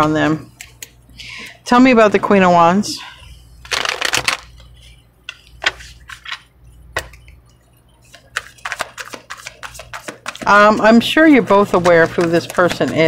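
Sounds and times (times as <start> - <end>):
cards being shuffled: 3.6 - 4.7, 5.3 - 7.2, 8.1 - 13.0
cards flicking and tapping: 8.1 - 13.0.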